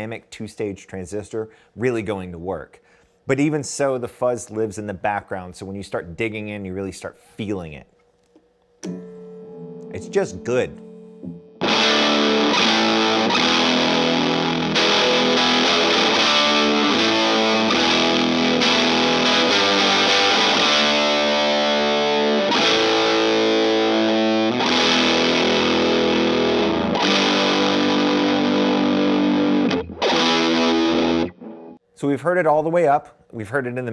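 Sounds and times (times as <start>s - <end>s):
distorted electric guitar chords: 8.8s - 31.8s.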